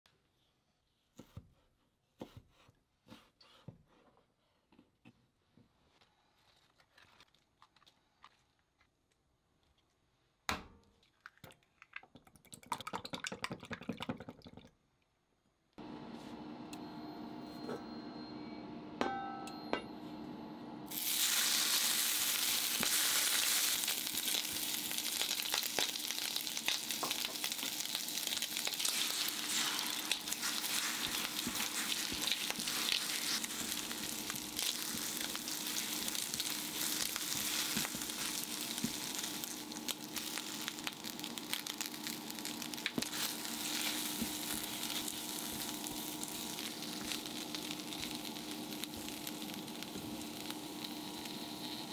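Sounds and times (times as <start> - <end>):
bacon sizzling in a frying pan: 20.9 - 51.9
hob humming: 26.5 - 51.9
lettuce leaves tearing: 28.0 - 42.1, 42.9 - 48.2
spatula scraping a pan: 28.3 - 39.3.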